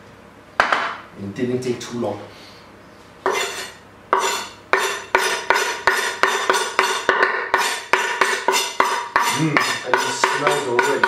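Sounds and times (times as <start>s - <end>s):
knife tapping on wooden board: 4.8s - 11.0s.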